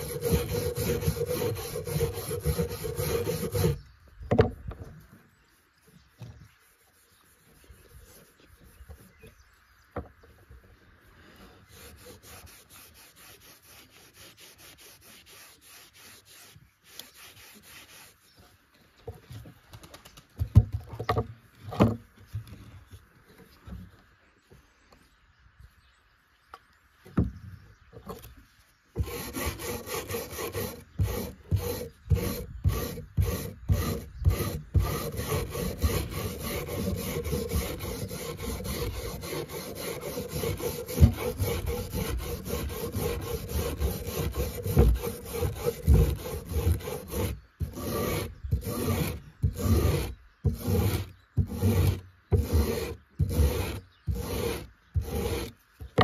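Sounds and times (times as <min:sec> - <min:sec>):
wire brush scrubbing metal: 0:00.0 - 0:03.8, 0:11.7 - 0:18.3, 0:29.0 - 0:56.0.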